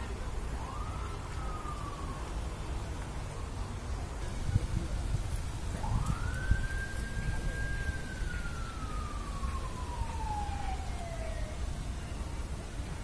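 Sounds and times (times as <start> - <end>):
distant siren wail: 0.3 - 3.7, 5.7 - 12.3.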